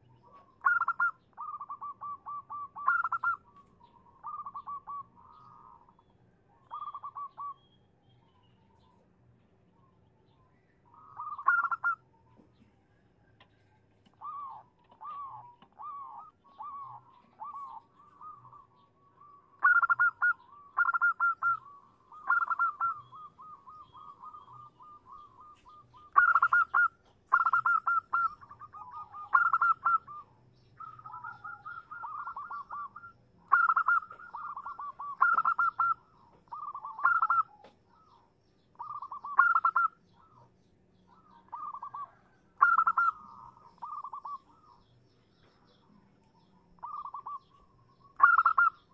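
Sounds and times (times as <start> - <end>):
dove cooing: 0.0 - 7.6, 10.9 - 48.9.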